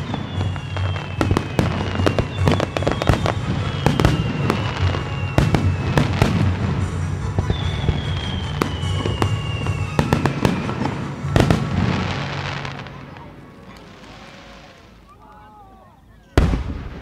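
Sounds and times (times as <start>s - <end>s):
falling firework whistles: 0.0s - 12.8s
music playing: 0.0s - 15.0s
fireworks bangs: 0.0s - 15.3s, 16.4s - 17.0s.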